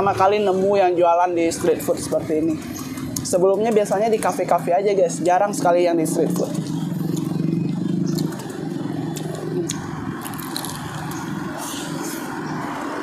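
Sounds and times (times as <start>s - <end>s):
low traffic engine hum: 0.0s - 13.0s
person chewing food: 6.6s - 12.0s.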